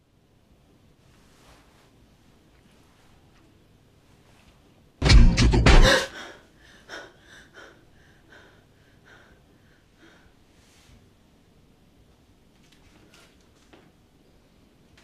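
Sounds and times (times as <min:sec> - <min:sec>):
woman gasping: 0:05.6 - 0:10.4
faint breaths: 0:05.9 - 0:11.1.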